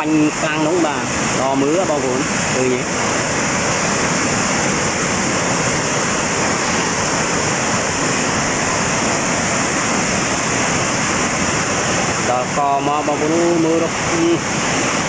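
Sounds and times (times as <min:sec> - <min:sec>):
water rushing over rapids: 0:00.0 - 0:15.0.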